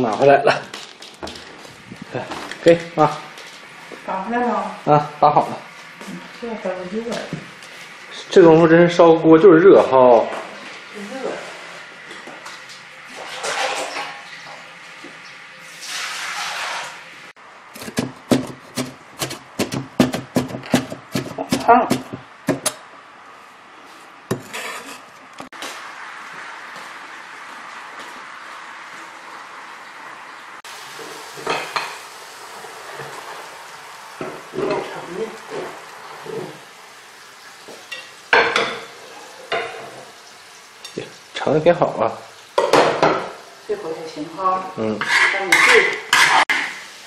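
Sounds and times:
wok sizzling: 0.0 - 47.0
cleaver chopping on wooden board: 17.8 - 22.8
steady hiss: 30.6 - 45.0
plates clattering against wok: 37.9 - 38.9, 42.6 - 43.3, 45.0 - 46.7.

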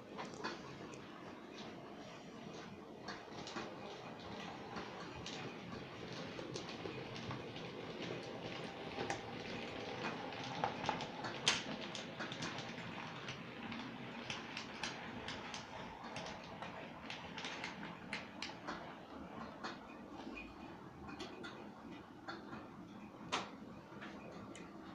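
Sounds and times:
model train wheels clicking: 3.1 - 18.8.

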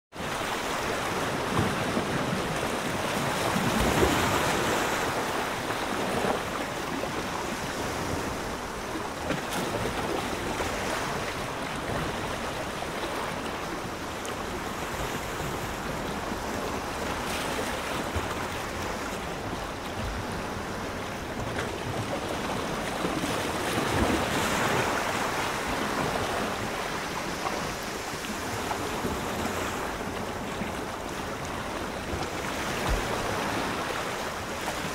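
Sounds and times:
ocean waves washing: 0.1 - 34.9.

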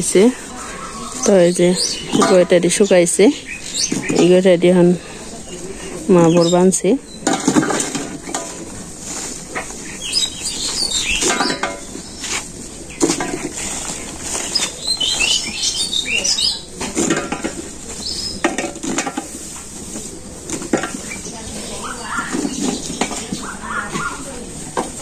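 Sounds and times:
small birds chirping: 0.0 - 19.0, 20.0 - 25.0
dung cakes knocking in metal bowl: 7.2 - 8.7, 11.2 - 12.0, 16.8 - 19.4, 20.4 - 21.1.

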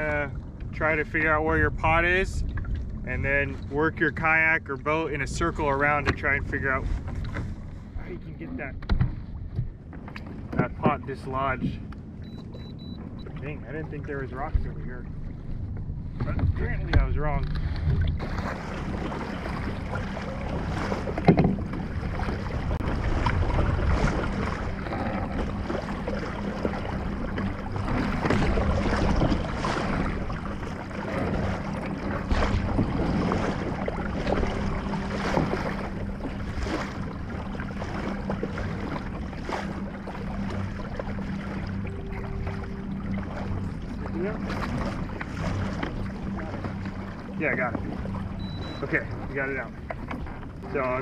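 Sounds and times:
wind on microphone: 0.0 - 49.3
water splashing along hull: 0.0 - 51.0
electric motor low hum: 17.5 - 51.0
knocks on kayak hull: 21.2 - 21.9.

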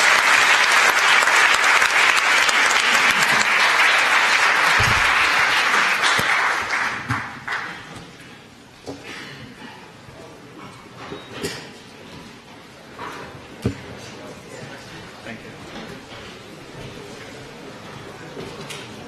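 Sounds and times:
audience applauding: 0.0 - 8.0
low bump: 4.8 - 5.4.

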